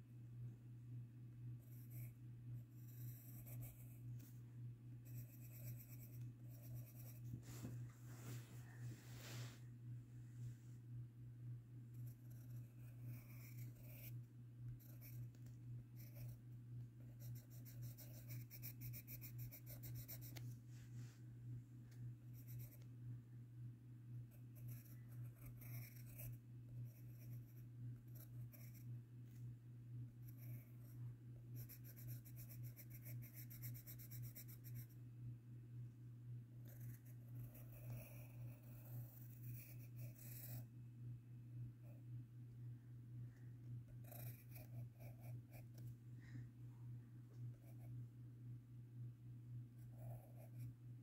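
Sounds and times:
low hum: 0.0 - 51.0
pencil scratching on paper: 1.6 - 2.2, 2.8 - 4.4, 5.0 - 7.5, 11.9 - 14.2, 14.8 - 16.4, 17.0 - 20.5, 22.4 - 22.9, 24.3 - 28.9, 30.2 - 31.0, 31.6 - 35.0, 36.6 - 40.6, 43.9 - 45.8, 49.8 - 50.7.

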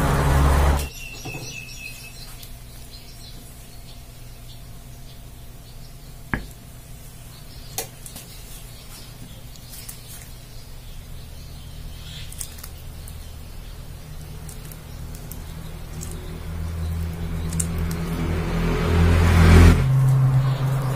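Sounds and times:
low hum: 0.0 - 0.9
fingers handling dates in bowl: 12.0 - 18.6.

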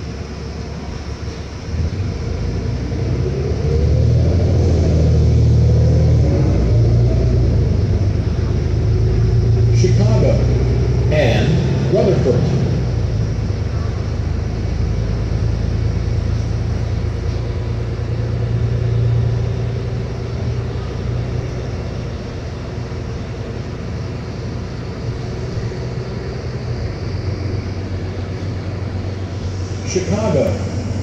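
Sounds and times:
bus engine hum: 0.0 - 31.0
low road rumble: 0.0 - 31.0.

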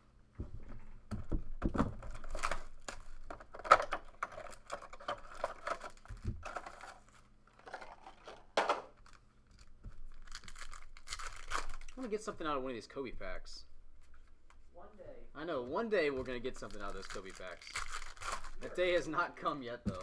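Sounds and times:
plastic wrap crinkling and tearing: 2.0 - 8.4, 9.0 - 12.1, 16.2 - 18.8.

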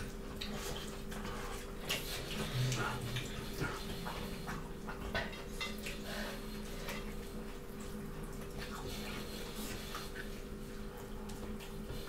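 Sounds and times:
wet chewing and lip smacks: 0.0 - 12.0.

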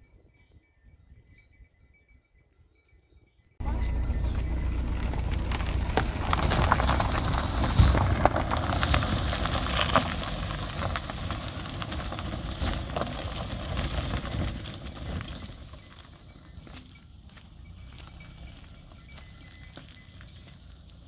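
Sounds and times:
car engine running: 3.6 - 16.0
tyres crunching on gravel: 3.6 - 21.0.

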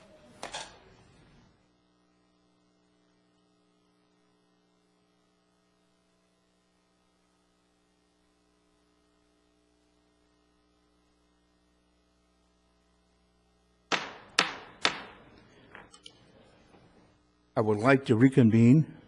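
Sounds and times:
faint electrical mains hum: 0.0 - 19.0
sharp knock: 13.9 - 15.3.

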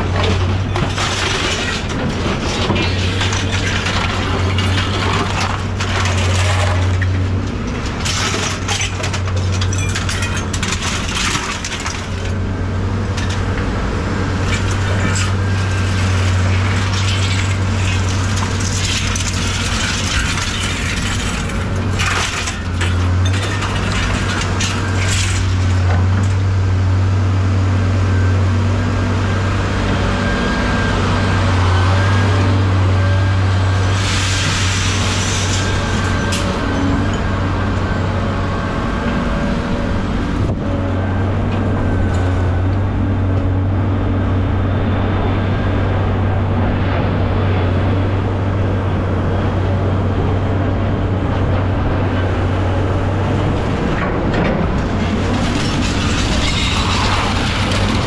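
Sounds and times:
heavy vehicle engine droning: 0.0 - 58.0
rattling and rushing noise: 50.6 - 58.0.

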